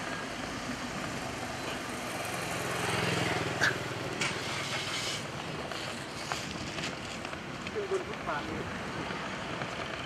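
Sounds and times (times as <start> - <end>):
vehicle engine passing: 0.0 - 6.3
traffic noise: 0.0 - 10.0.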